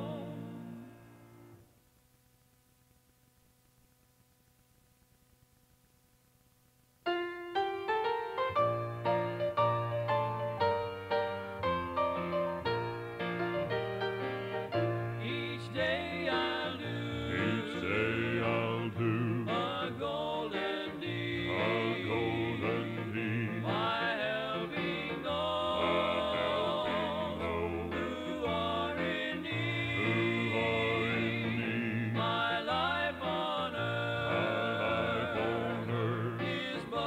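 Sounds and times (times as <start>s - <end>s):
vocal group singing a hymn: 0.0s - 1.0s, 14.7s - 37.0s
instrumental accompaniment: 7.1s - 19.9s.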